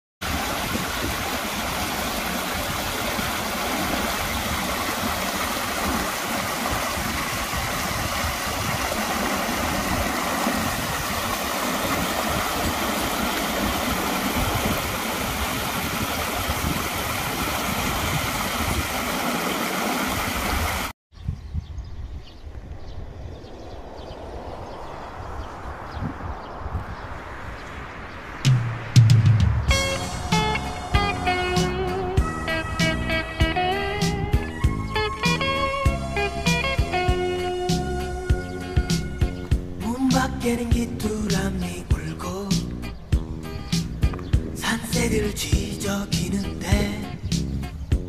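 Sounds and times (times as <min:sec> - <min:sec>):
stream water rushing over rocks: 0:00.2 - 0:20.9.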